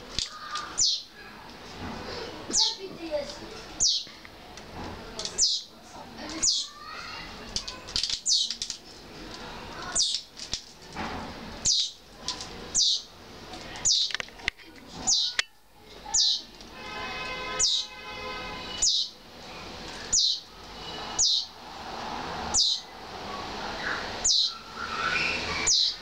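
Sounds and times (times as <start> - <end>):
fledgling sparrows cheeping: 0.2 - 1.2, 2.5 - 2.8, 3.7 - 4.1, 5.2 - 5.7, 6.3 - 7.2, 8.0 - 8.7, 9.8 - 10.3, 11.6 - 12.0, 12.7 - 13.1, 13.8 - 14.1, 15.0 - 15.4, 16.1 - 16.5, 17.4 - 18.0, 18.6 - 21.6, 22.4 - 26.0.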